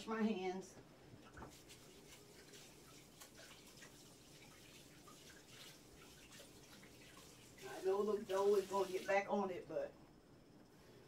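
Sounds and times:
water splashes and drips: 0:01.2 - 0:09.3.

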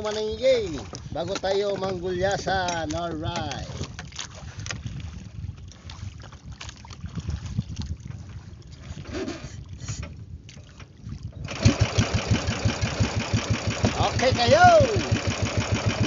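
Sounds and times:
small boat engine running: 0:11.4 - 0:16.0.

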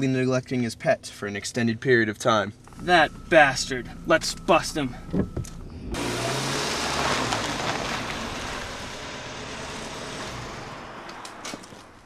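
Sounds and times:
car engine running: 0:02.6 - 0:12.0
tyres rolling on pavement: 0:06.0 - 0:12.0.

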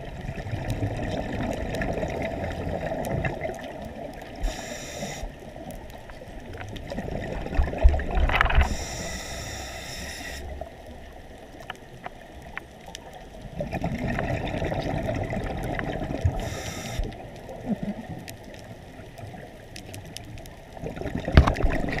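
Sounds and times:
exhaled bubbles gurgling: 0:00.0 - 0:22.0
regulator hissing inhalations: 0:04.4 - 0:05.4, 0:08.6 - 0:10.5, 0:16.4 - 0:17.1.

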